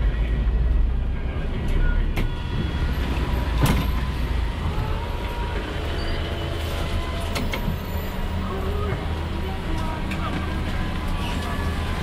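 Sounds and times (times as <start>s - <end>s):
minibus engine rumble: 0.0s - 12.0s.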